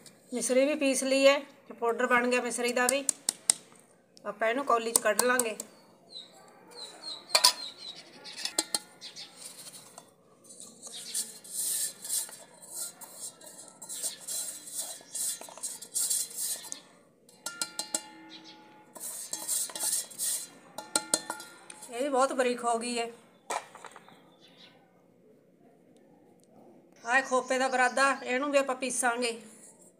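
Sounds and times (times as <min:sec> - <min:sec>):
metal jar clinking against bowl: 0:07.3 - 0:22.2
powder scraping and rustling: 0:08.0 - 0:16.9, 0:18.9 - 0:22.4.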